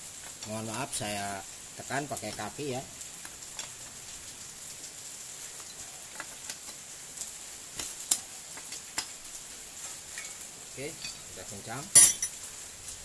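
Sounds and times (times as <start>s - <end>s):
low steady hiss: 0.0s - 13.0s.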